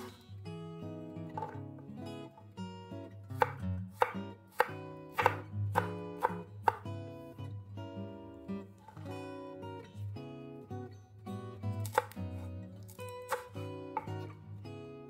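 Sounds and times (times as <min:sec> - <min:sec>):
knife chopping on wooden board: 0:01.4 - 0:01.6, 0:03.4 - 0:06.9, 0:11.8 - 0:12.5, 0:13.3 - 0:14.2.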